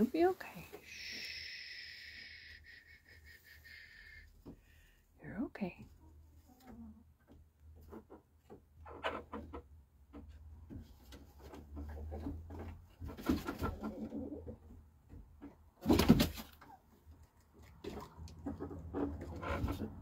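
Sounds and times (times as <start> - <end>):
chickens rustling: 5.8 - 20.0
chickens clucking softly: 11.7 - 14.8.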